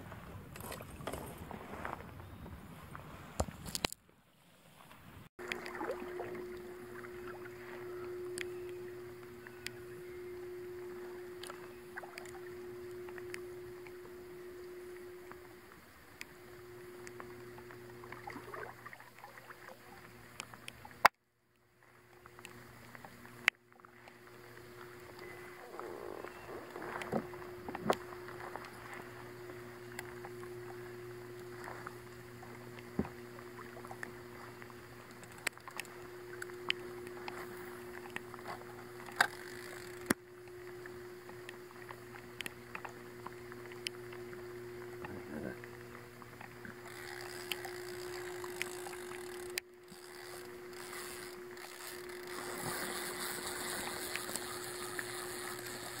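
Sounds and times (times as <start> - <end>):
paddle strokes in water: 0.0 - 3.7, 4.6 - 10.0, 22.1 - 56.0
steady low hum: 5.3 - 56.0
small ticks and drips: 5.4 - 56.0.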